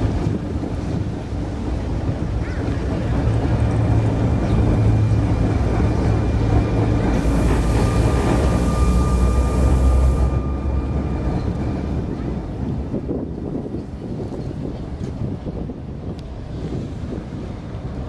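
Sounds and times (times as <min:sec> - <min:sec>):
tram wheels and motor rumbling: 0:00.0 - 0:18.0
hiss: 0:07.2 - 0:10.3.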